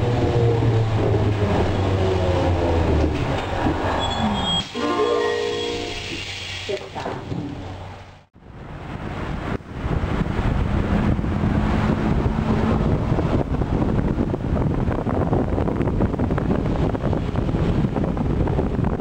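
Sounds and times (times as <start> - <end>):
road and wind noise: 0.0 - 19.0.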